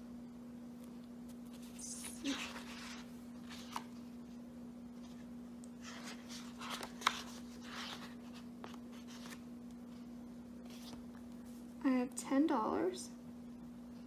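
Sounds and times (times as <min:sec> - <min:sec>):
steady low hum: 0:00.0 - 0:14.0
paper pages rustling: 0:01.3 - 0:04.1, 0:05.0 - 0:10.0, 0:10.6 - 0:11.6.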